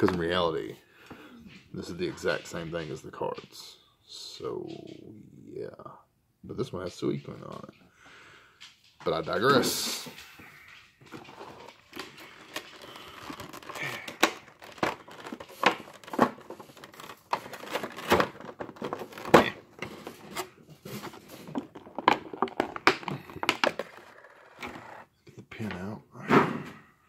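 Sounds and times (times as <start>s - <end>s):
plastic tray crinkling and clicking: 11.0s - 25.0s.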